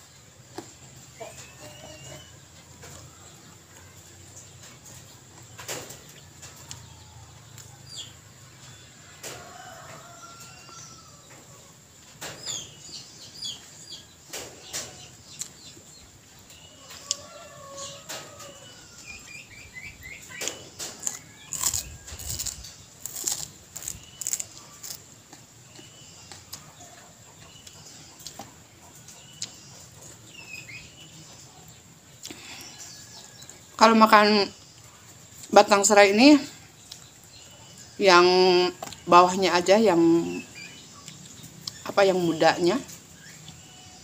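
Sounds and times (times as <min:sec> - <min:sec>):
small birds chirping: 0:00.0 - 0:44.0
crunching and chewing: 0:00.4 - 0:10.8, 0:14.3 - 0:18.6, 0:20.0 - 0:33.6, 0:36.6 - 0:37.8, 0:38.7 - 0:39.1, 0:40.6 - 0:41.9.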